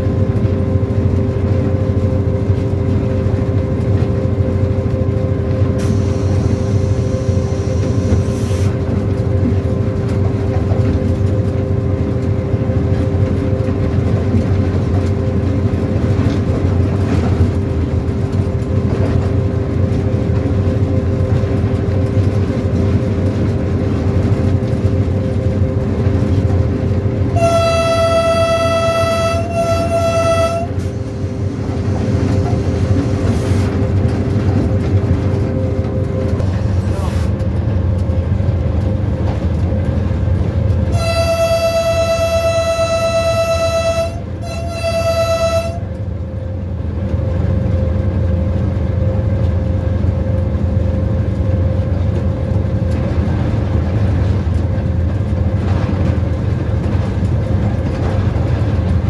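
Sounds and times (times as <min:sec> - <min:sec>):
diesel locomotive rumbling on rails: 0:00.0 - 0:59.0
locomotive horn: 0:27.3 - 0:32.2, 0:40.8 - 0:46.0.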